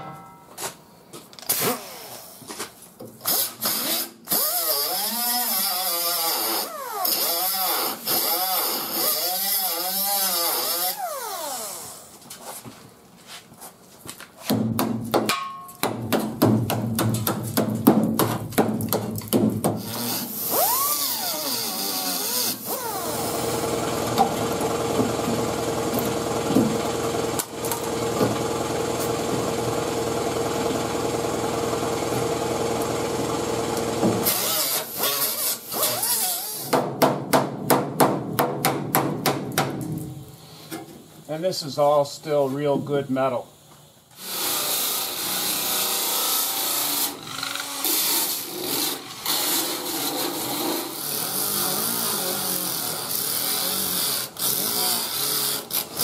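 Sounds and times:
steady mechanical hum: 10.9 - 56.0
hammer knocking on sheet metal: 14.5 - 19.8, 36.8 - 39.8.

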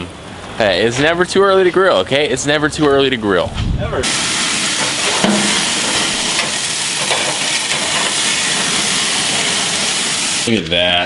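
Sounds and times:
patties sizzling on a grill: 3.9 - 10.6.

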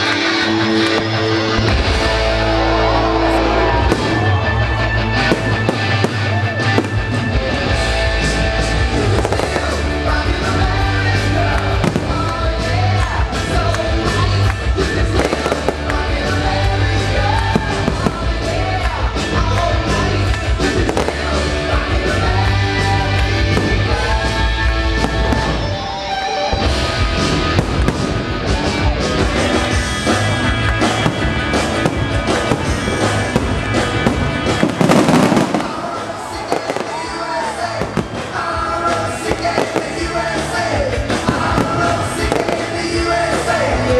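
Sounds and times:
fireworks cracks and bangs: 0.0 - 43.9
music with heavy bass: 0.0 - 43.9.

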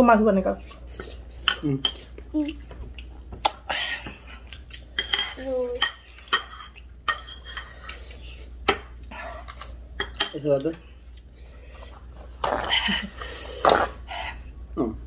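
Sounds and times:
spoons clinking against dishes: 5.0 - 7.8, 10.0 - 10.4.

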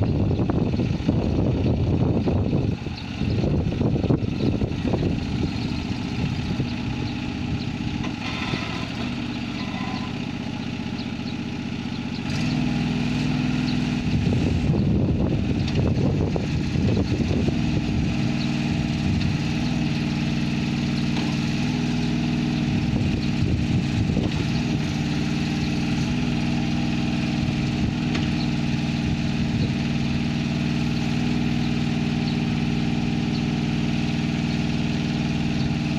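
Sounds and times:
excavator engine running: 0.0 - 35.9.

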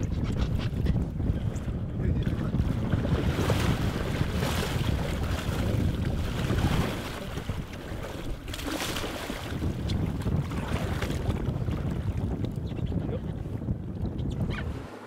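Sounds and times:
wind buffeting microphone: 0.0 - 14.9
waves splashing against boat hull: 0.0 - 15.0.

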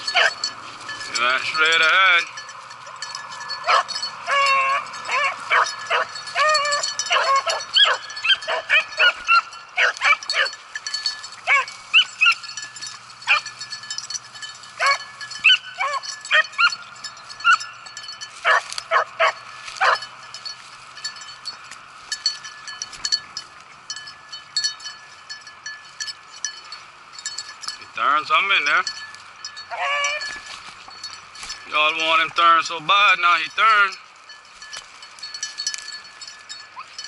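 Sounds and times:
dogs baying: 0.0 - 1.2, 2.6 - 20.1, 29.5 - 31.1.

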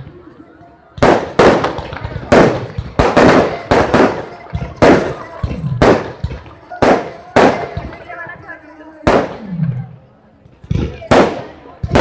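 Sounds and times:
firecrackers banging: 0.9 - 12.0.

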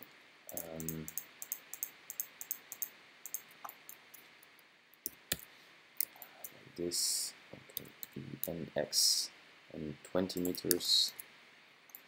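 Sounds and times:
mouse and keyboard clicks: 0.5 - 4.0.

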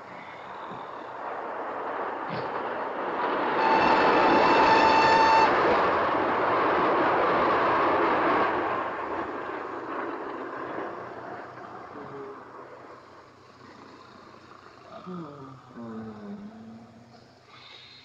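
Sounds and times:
steam train rumbling past: 0.0 - 15.1.

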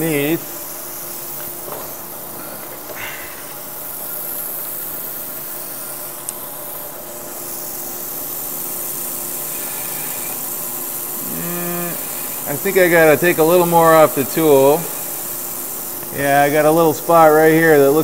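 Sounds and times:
low motor hum: 0.0 - 17.0
coolant spray hissing: 0.0 - 18.0
lathe tool cutting metal: 0.0 - 18.0.

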